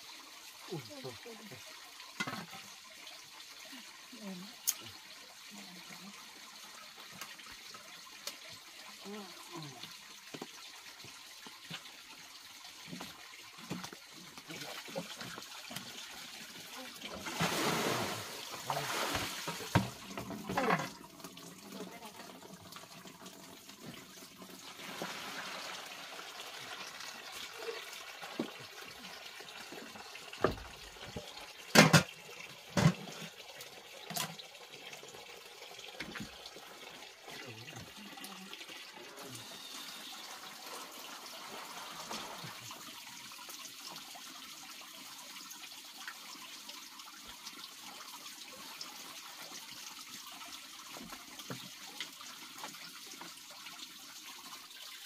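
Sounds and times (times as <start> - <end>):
water running and splashing: 0.0 - 55.0.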